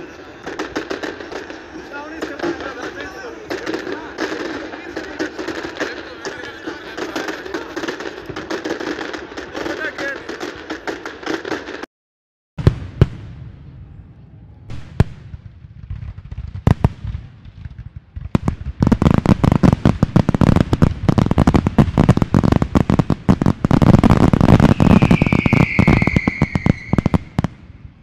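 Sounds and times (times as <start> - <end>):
firework bangs and crackle: 0.0 - 11.9, 12.6 - 28.0
firework whistle: 24.4 - 27.5.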